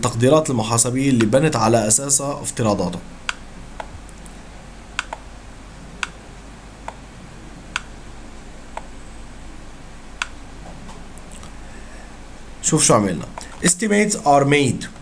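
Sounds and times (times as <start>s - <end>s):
low steady hum: 0.0s - 15.0s
computer control clicks: 5.0s - 5.2s, 6.0s - 6.2s, 7.7s - 7.9s.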